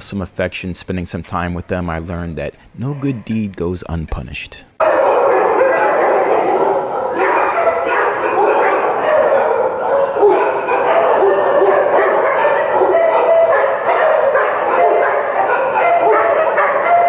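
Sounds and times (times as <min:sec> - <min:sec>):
many dogs barking: 0:04.8 - 0:17.0.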